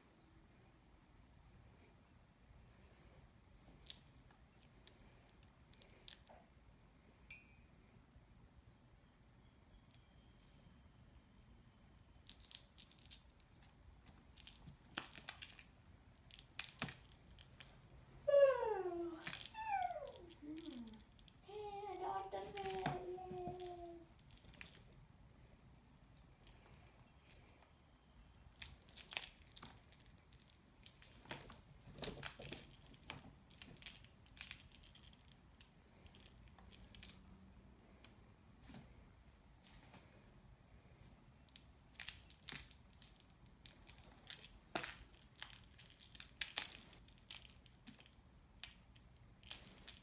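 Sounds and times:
rustling of wand toy: 11.8 - 27.8, 28.4 - 37.4, 41.0 - 50.0.

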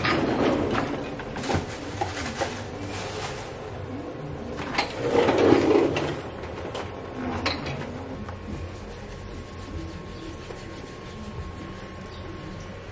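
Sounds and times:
rustling rubbing stretch: 8.5 - 12.2.

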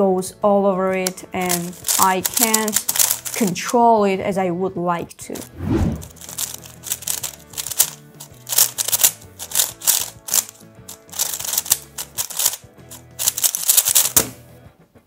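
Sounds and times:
background music: 0.0 - 15.0
plastic puzzle cube clicking: 1.0 - 3.6, 5.4 - 14.3.

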